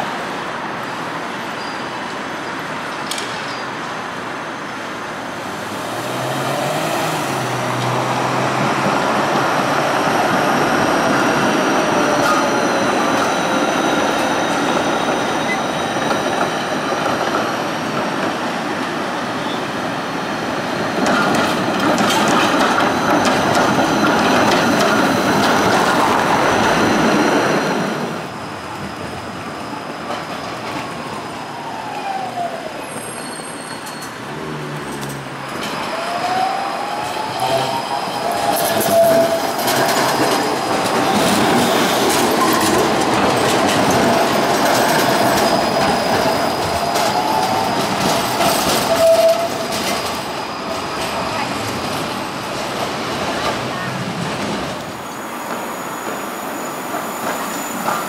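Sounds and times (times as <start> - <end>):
tram rumbling on rails: 0.0 - 58.0
high wheel squeal: 32.6 - 34.3, 34.9 - 42.8, 44.8 - 51.6, 55.0 - 58.0.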